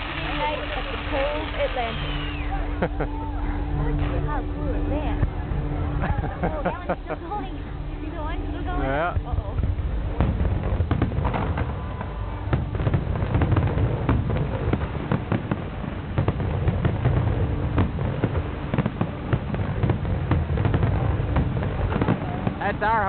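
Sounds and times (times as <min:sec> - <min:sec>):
firework shell bursts and crackle: 0:00.0 - 0:02.7, 0:09.6 - 0:23.0
low rumble: 0:00.0 - 0:23.0.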